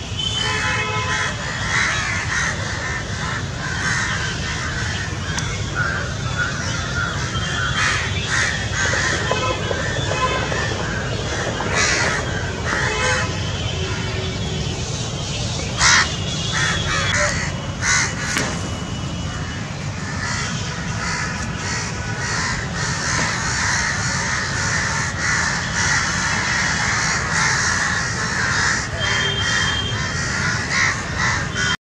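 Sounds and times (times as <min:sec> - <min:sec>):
crows cawing: 0:01.0 - 0:14.2, 0:15.8 - 0:18.4, 0:19.2 - 0:31.8.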